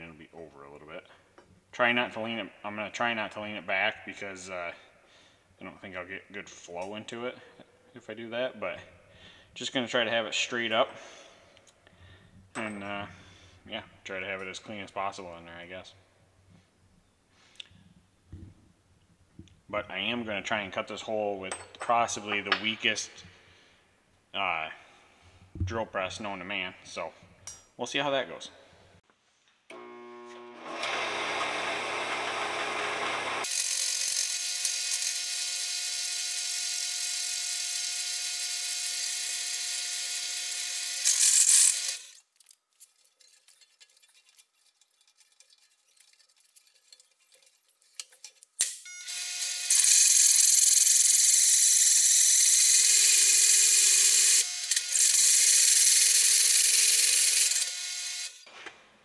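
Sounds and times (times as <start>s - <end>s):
drill press motor hum: 29.7s - 42.2s
hole saw grinding metal: 30.6s - 58.5s.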